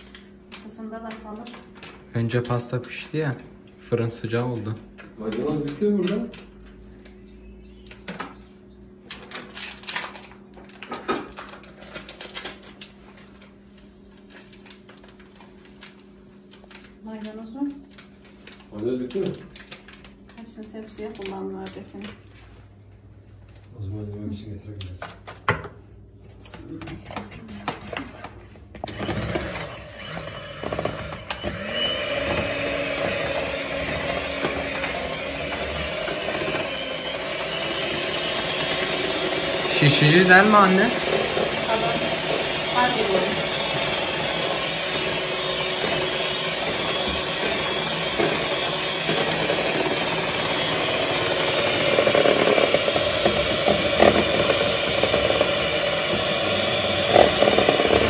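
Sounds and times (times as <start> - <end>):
electric hand mixer running: 28.8 - 58.0.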